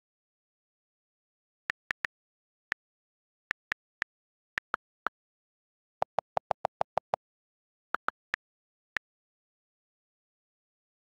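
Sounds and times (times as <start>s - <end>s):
rapid lower-pitched clicks: 3.5s - 5.2s.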